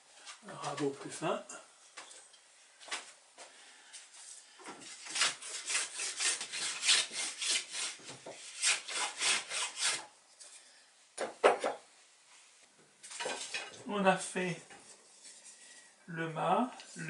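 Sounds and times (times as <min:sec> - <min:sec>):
hand plane strokes on wood: 0:04.7 - 0:10.1.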